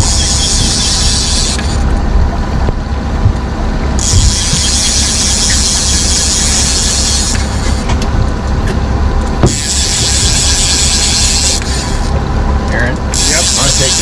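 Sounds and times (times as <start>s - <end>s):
fishing reel drag buzzing: 0.0s - 1.9s, 4.0s - 7.9s, 9.5s - 12.2s, 13.1s - 14.0s
outboard motor hum: 0.0s - 14.0s.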